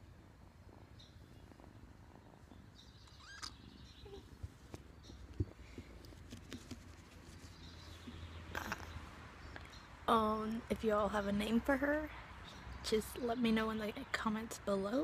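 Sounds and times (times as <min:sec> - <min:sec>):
faint rustling: 0:00.0 - 0:08.8.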